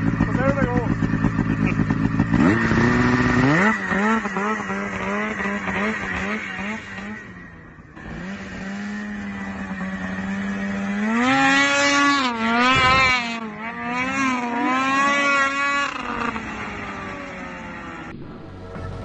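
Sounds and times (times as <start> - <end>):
snowmobile engine revving: 0.0 - 19.0.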